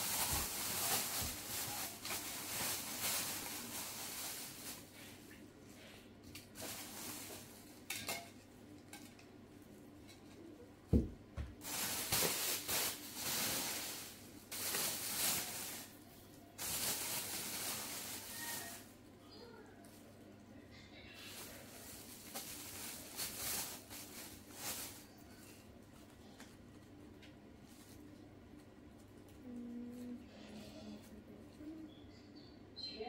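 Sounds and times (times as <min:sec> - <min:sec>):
dishes clinking: 0:07.9 - 0:08.4.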